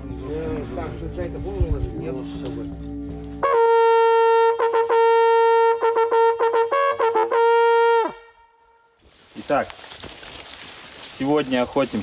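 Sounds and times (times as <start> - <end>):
brass hunting horn blowing: 3.3 - 9.0.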